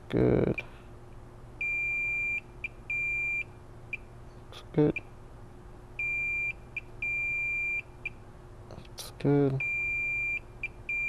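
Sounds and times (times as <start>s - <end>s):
multimeter beeping: 1.6s - 3.5s, 6.0s - 7.8s, 9.6s - 11.0s.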